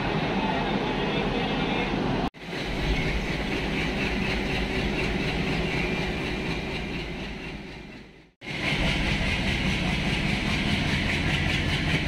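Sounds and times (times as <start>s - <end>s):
diesel locomotive engine rumble: 0.0s - 12.0s
train coach running noise: 0.0s - 12.0s.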